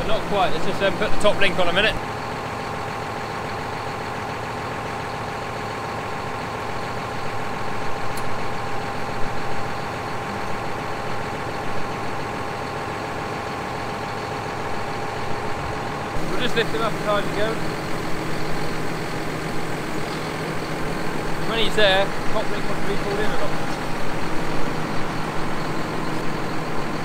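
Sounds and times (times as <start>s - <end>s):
tractor diesel engine idling: 0.0s - 27.0s.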